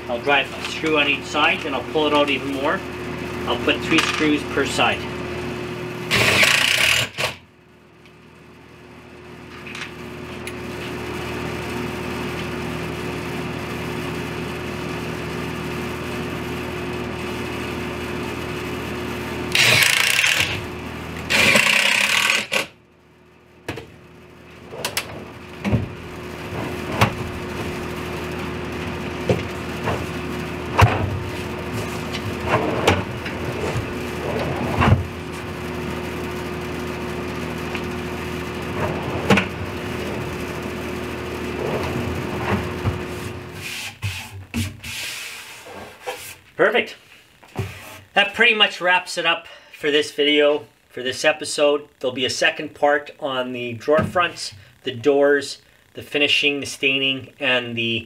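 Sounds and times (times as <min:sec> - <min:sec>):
steady hum: 0:00.0 - 0:58.0
cordless drill driving screws: 0:06.1 - 0:07.4, 0:19.5 - 0:20.6, 0:21.3 - 0:22.7.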